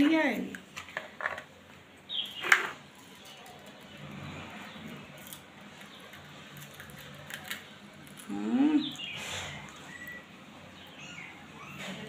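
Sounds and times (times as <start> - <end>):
parakeet crunching a biscuit: 3.0 - 8.4.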